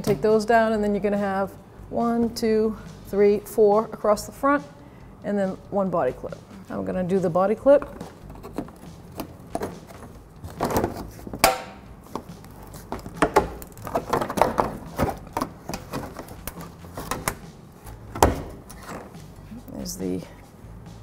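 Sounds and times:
clicks and knocks of tools and plastic: 7.8s - 17.5s.

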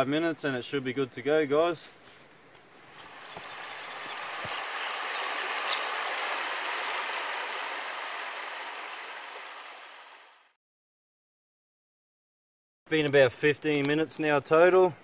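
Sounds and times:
river water rushing: 2.8s - 10.4s.

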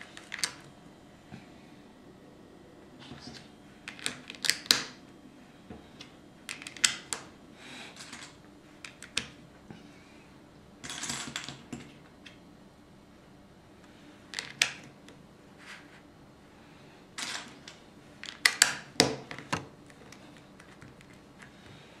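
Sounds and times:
plastic bricks clicking: 3.9s - 5.0s, 6.5s - 7.2s, 14.3s - 14.9s, 18.2s - 21.2s.

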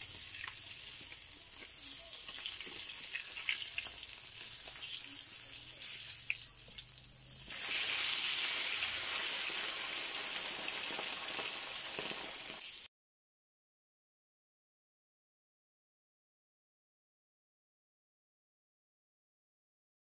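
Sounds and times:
fish sizzling in oil: 0.0s - 12.9s.

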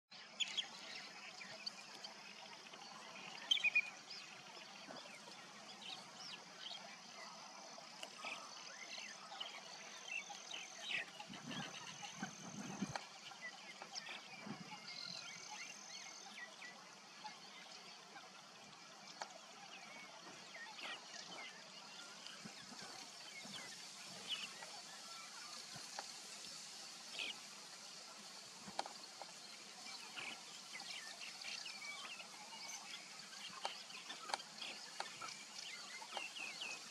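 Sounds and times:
animal chewing water plants: 28.2s - 36.9s.

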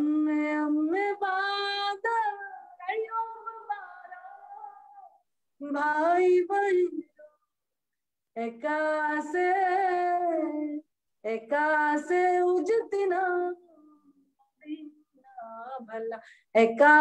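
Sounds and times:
woman singing unaccompanied: 0.0s - 7.4s, 8.4s - 17.0s.

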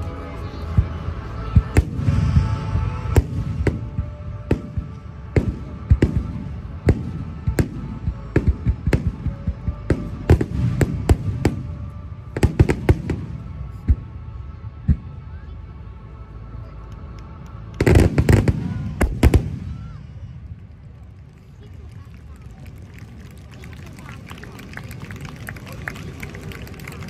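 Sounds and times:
background music: 0.0s - 20.5s
fireworks bangs with echoes: 1.6s - 14.1s, 17.8s - 20.1s.

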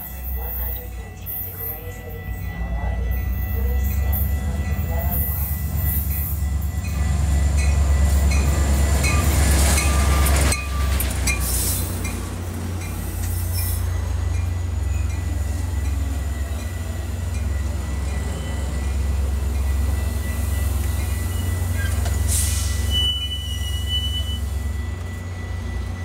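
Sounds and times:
train engine rumble: 0.0s - 26.0s.

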